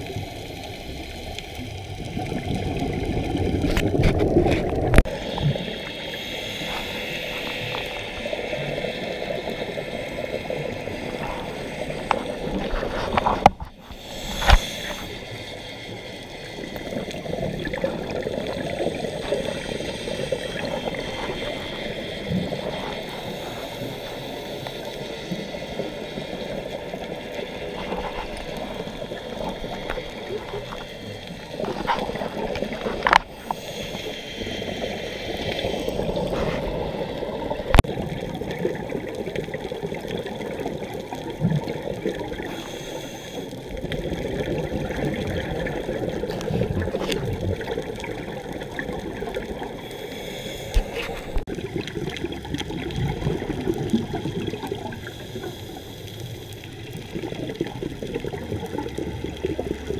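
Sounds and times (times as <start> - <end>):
gurgling exhaled bubbles: 0.0 - 59.9
scuba regulator breathing: 3.6 - 37.8, 42.3 - 44.2, 44.8 - 51.5, 54.8 - 57.2.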